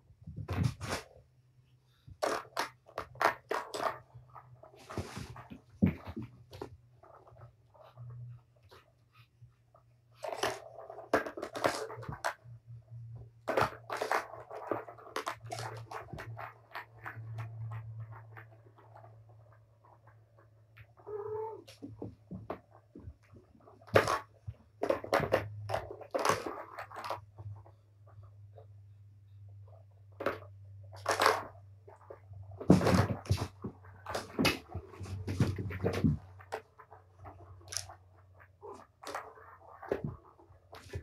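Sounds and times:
plastic balls clattering in toy: 0:13.4 - 0:19.4, 0:30.2 - 0:41.0
kitten mewing: 0:21.0 - 0:21.7.

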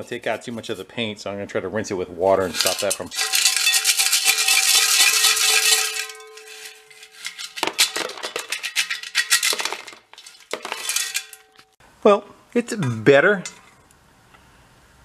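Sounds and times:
hardware rattling inside metal tank: 0:02.5 - 0:11.7.

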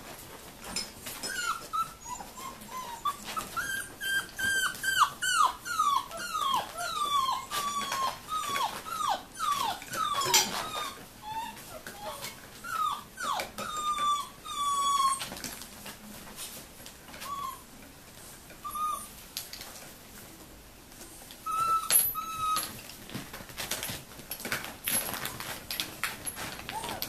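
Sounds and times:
puppies whining: 0:00.8 - 0:15.6, 0:17.2 - 0:17.7, 0:18.6 - 0:19.2, 0:21.4 - 0:23.0, 0:26.3 - 0:27.0.

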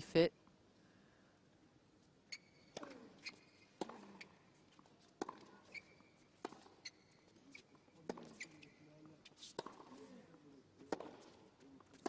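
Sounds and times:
shoes squeaking on court: 0:02.2 - 0:10.2
rackets striking tennis ball: 0:02.6 - 0:08.7, 0:09.3 - 0:10.0, 0:10.8 - 0:12.0.

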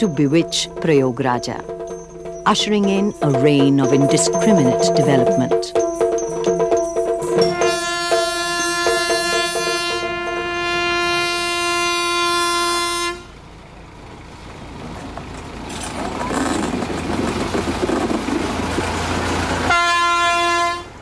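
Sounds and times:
train running rumble: 0:00.0 - 0:21.0
train horn blast: 0:07.4 - 0:13.4, 0:19.6 - 0:21.0.

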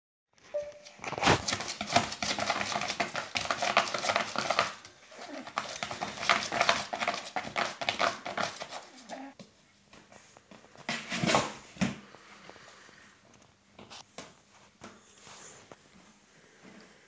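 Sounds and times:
puppy claws scratching cardboard: 0:01.2 - 0:09.3.

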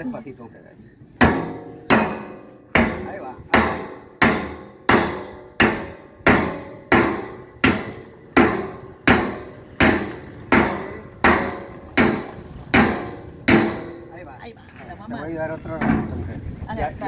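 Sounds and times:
machete striking steel drum: 0:01.2 - 0:14.2.

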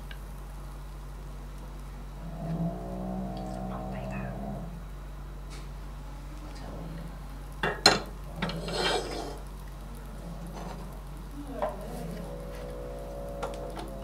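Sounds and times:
low steady hum: 0:00.0 - 0:14.0
scraping rustle: 0:08.3 - 0:14.0.

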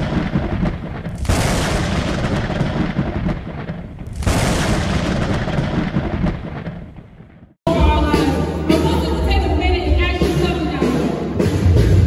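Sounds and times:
thunder claps with rumble: 0:00.0 - 0:07.6.

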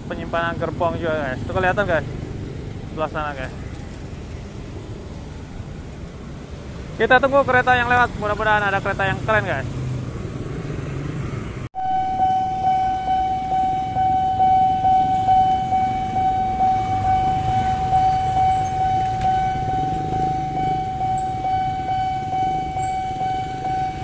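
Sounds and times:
motorcycle traffic: 0:00.0 - 0:24.0
level crossing alarm pulsing: 0:11.8 - 0:24.0.

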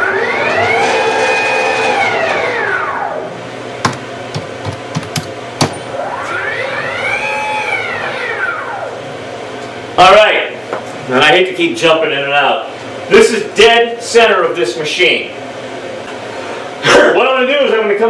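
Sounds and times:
cnc router stepper motors whining: 0:00.0 - 0:03.4, 0:05.8 - 0:09.2.

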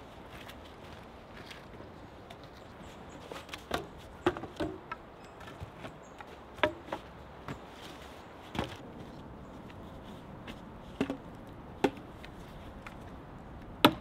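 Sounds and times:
wooden sticks knocking and snapping: 0:10.5 - 0:14.0.

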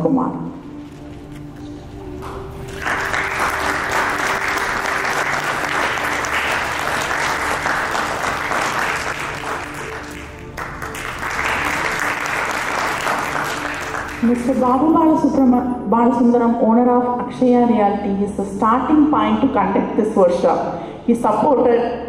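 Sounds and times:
background music: 0:00.0 - 0:22.0
audience applauding: 0:02.2 - 0:14.7.

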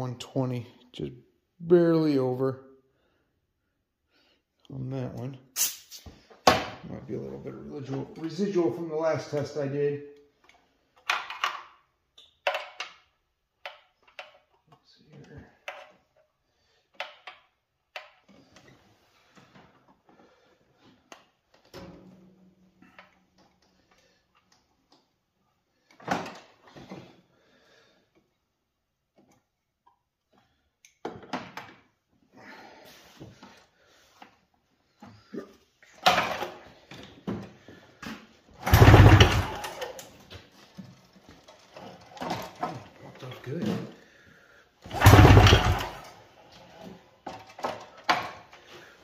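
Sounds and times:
pull-cord tugs and rattles: 0:38.5 - 0:43.9, 0:44.8 - 0:49.0
pull-cord starter cranking engine: 0:38.6 - 0:40.2, 0:44.8 - 0:46.3.

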